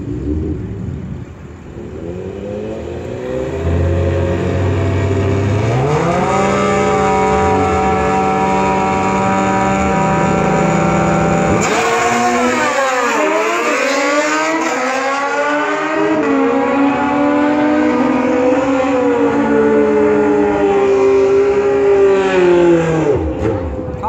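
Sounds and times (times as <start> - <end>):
motorcycle engines revving: 0.0 - 24.0
motorcycles accelerating: 0.0 - 24.0.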